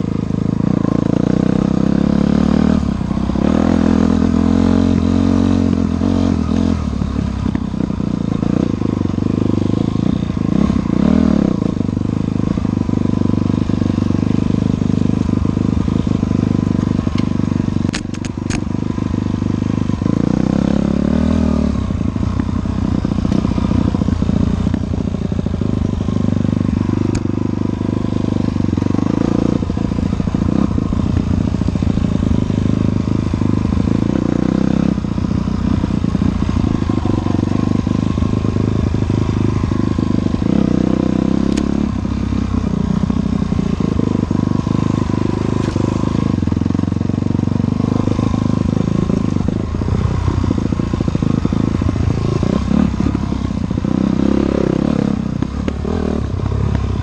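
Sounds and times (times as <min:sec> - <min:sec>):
dirt bike engine revving: 0:00.0 - 0:57.0
sharp clicks: 0:17.9 - 0:18.7.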